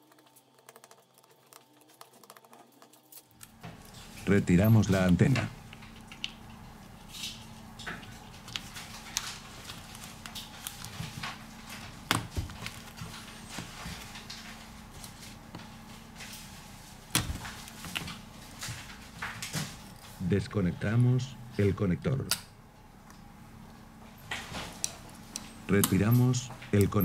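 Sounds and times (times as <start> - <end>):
faint steady hum: 0.0 - 27.0
tools tapping phone parts: 24.3 - 27.0.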